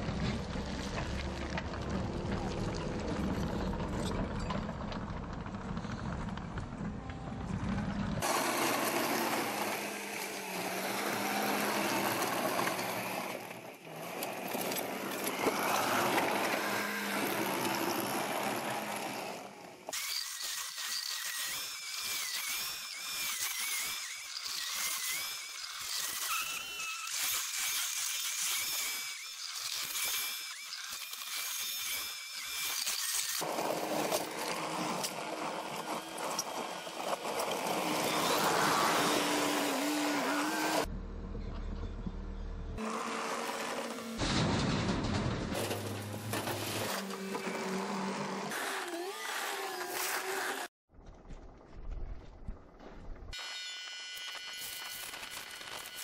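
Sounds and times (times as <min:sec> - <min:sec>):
loader engine running: 0:00.0 - 0:19.8, 0:33.4 - 0:48.5.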